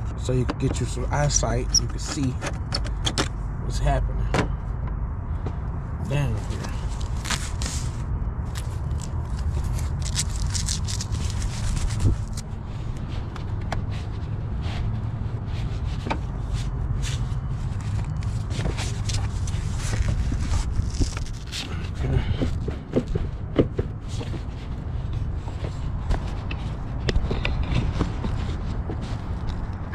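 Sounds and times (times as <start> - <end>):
steady low rumble: 0.0 - 29.9
rubber duct scraping and clicking: 6.4 - 12.4, 15.6 - 29.9.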